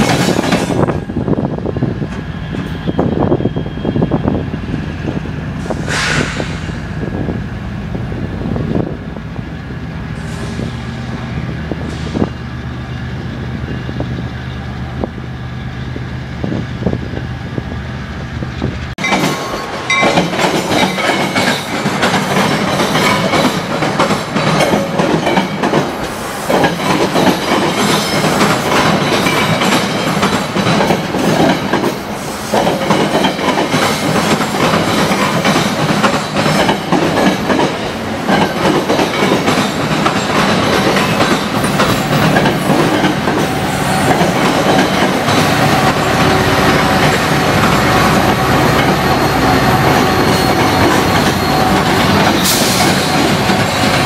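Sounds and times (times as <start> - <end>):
train wheels clacking over rails: 0.0 - 4.4, 5.0 - 7.4, 18.7 - 54.0.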